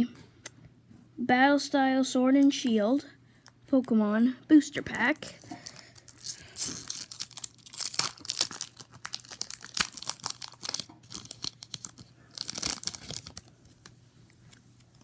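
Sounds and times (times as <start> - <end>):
foil wrapper tearing and crinkling: 4.9 - 13.8.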